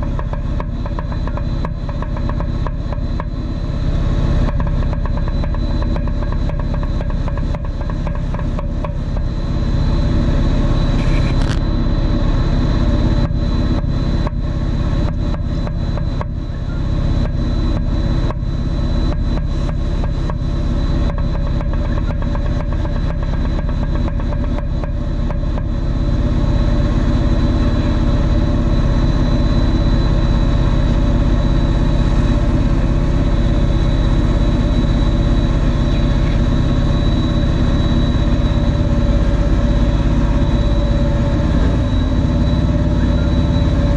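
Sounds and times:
quadcopter motors buzzing: 0:00.0 - 0:43.9.

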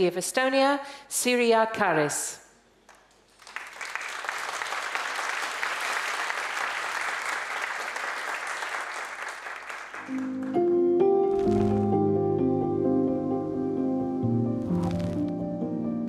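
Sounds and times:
audience applauding: 0:02.9 - 0:10.7
music with sustained notes: 0:10.1 - 0:16.0.

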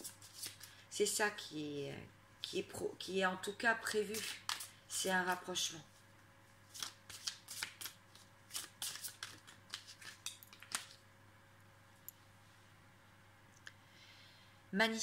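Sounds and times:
cards shuffling: 0:00.0 - 0:00.8, 0:06.6 - 0:11.0.

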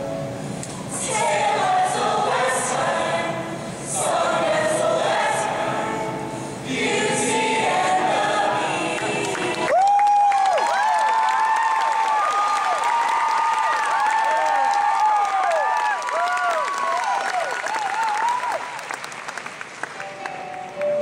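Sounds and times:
group singing in chorus: 0:00.9 - 0:09.7.

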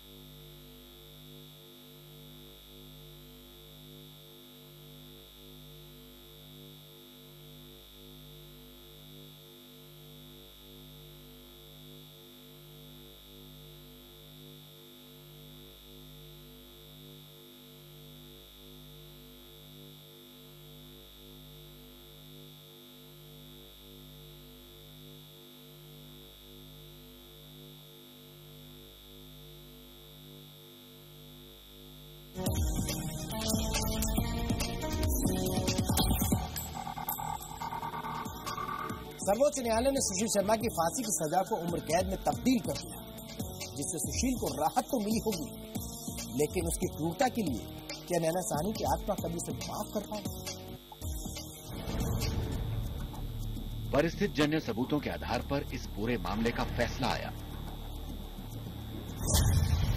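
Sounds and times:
low synthesizer drone: 0:32.4 - 0:59.9.

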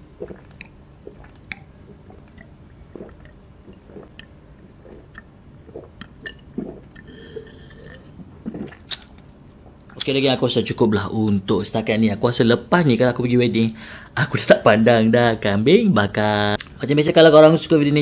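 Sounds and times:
man swallowing and gulping: 0:00.0 - 0:10.0
wet mouth noises: 0:00.0 - 0:10.0.

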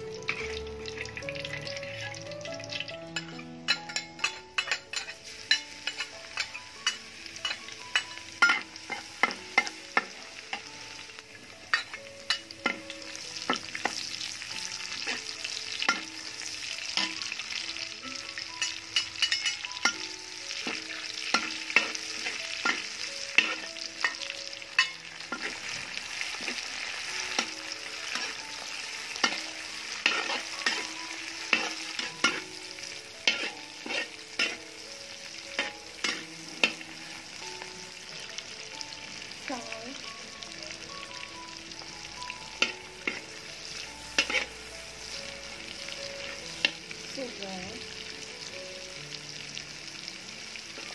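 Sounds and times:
oil sizzling in a wok: 0:00.0 - 0:50.9
metal spatula scraping a wok: 0:27.3 - 0:34.9, 0:42.6 - 0:45.2.

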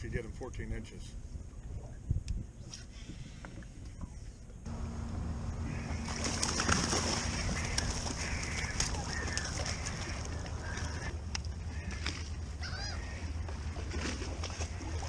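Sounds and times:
steady low hum: 0:00.0 - 0:15.0
water splashing and sloshing: 0:04.7 - 0:15.0.

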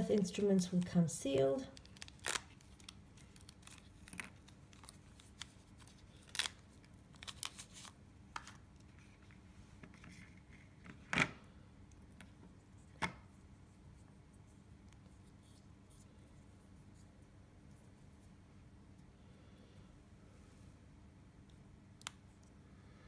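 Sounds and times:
plastic pouch crinkling: 0:01.7 - 0:08.6.

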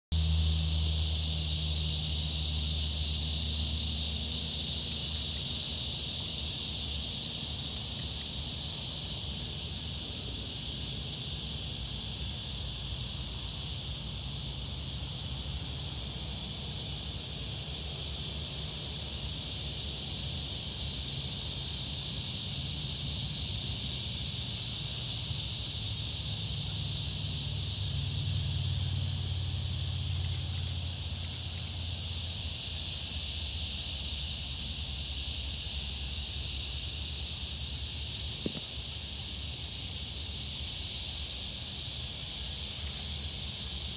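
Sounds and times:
high-pitched insect chorus: 0:00.1 - 0:43.9.

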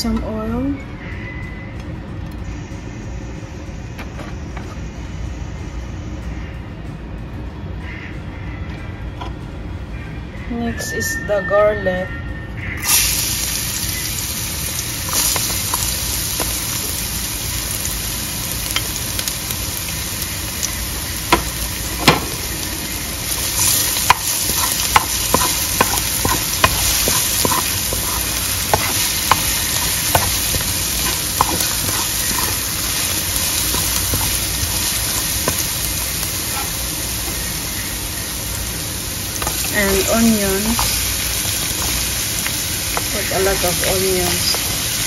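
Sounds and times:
garlic sizzling in hot oil: 0:12.8 - 0:45.0
spatula tapping and scraping pan: 0:23.3 - 0:37.5, 0:39.4 - 0:43.7.

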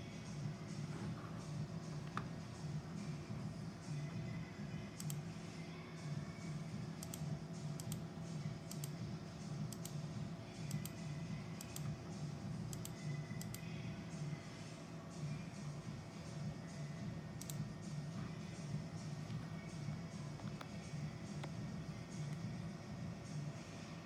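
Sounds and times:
sharp clicks: 0:05.0 - 0:05.2, 0:07.0 - 0:08.0, 0:08.7 - 0:09.0, 0:11.6 - 0:11.9, 0:12.7 - 0:13.6, 0:17.4 - 0:17.6.

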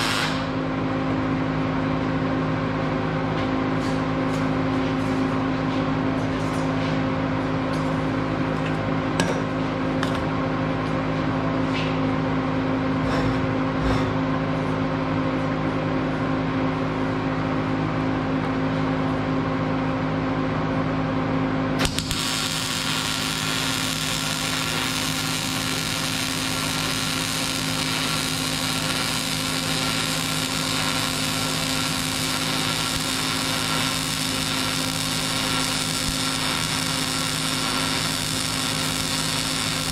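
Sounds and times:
welding arc hissing: 0:00.0 - 0:00.6, 0:21.8 - 0:39.9
machine hum: 0:12.2 - 0:39.9.

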